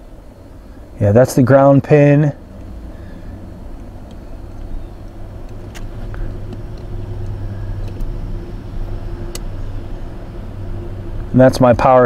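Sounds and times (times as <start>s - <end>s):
vehicle running hum: 0.0s - 12.0s
faint clicks of test probes: 3.7s - 8.1s.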